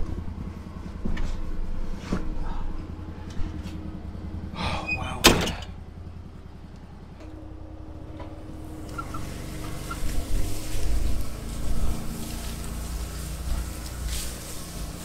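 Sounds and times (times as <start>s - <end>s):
vehicle engine running low: 0.0s - 15.0s
loud thunk: 5.2s - 5.7s.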